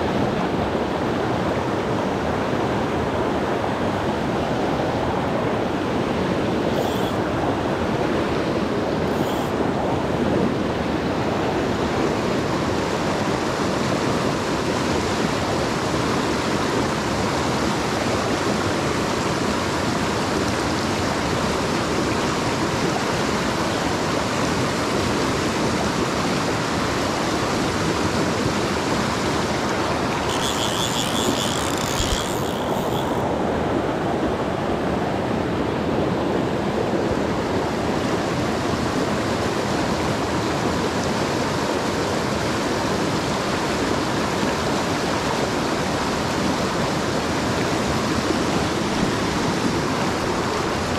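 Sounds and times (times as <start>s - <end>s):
river rushing over rocks: 0.0s - 50.9s
fly reel ratchet buzzing: 6.7s - 7.2s, 9.1s - 9.5s, 30.1s - 33.3s.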